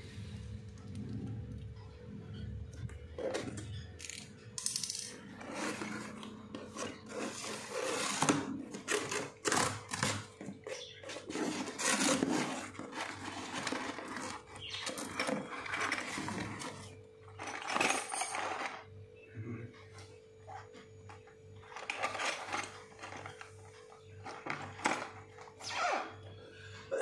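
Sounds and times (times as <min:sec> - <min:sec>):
cardboard box rustling and scraping: 0:11.1 - 0:16.8.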